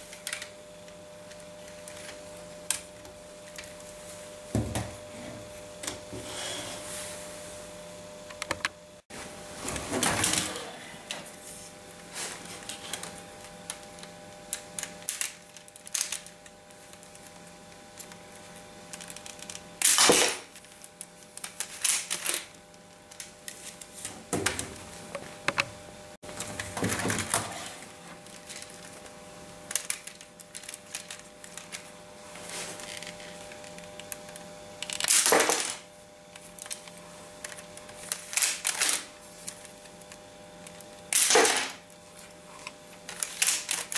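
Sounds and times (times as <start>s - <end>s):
sharp plastic snap: 41.1s - 41.8s.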